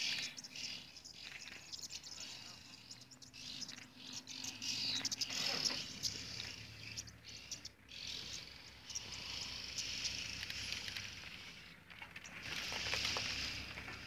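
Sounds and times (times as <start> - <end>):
insects chirring: 4.4 - 11.6.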